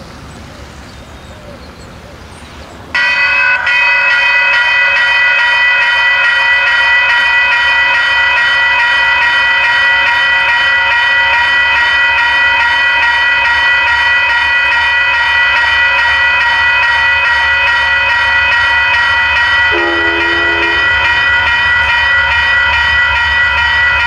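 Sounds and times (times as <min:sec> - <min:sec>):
railroad crossing bell ringing: 0:00.0 - 0:24.0.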